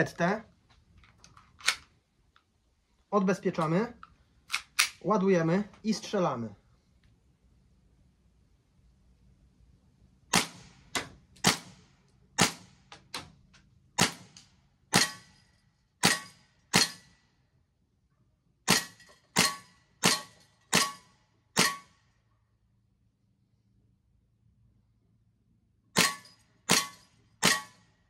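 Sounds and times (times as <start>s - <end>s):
air pistol firing pops: 10.3s - 11.8s, 16.0s - 17.1s.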